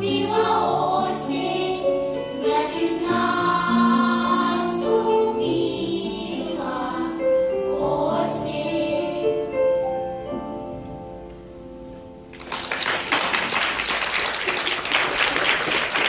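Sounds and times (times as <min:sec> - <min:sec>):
children's choir singing: 0:00.0 - 0:09.7
audience applause: 0:12.3 - 0:16.0.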